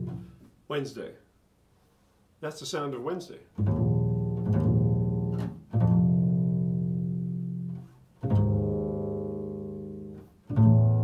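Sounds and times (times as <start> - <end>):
double bass deep notes: 0.0 - 0.4, 3.6 - 11.0.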